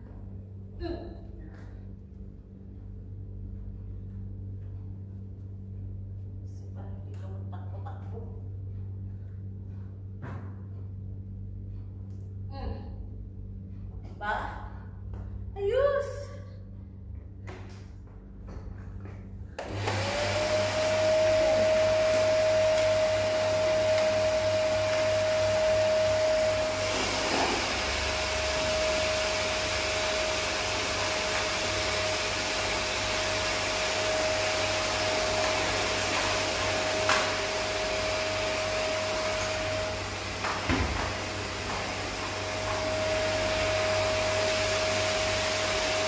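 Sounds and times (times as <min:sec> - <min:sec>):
vacuum cleaner motor whine: 0:19.6 - 0:46.0.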